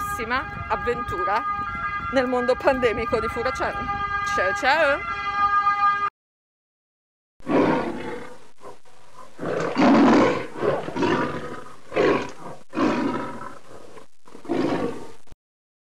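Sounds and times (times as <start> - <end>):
lion roaring and growling: 7.4 - 15.2.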